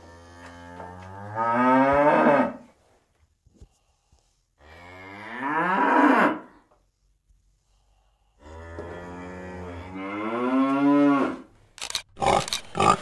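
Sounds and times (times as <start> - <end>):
cow mooing: 8.4 - 11.5.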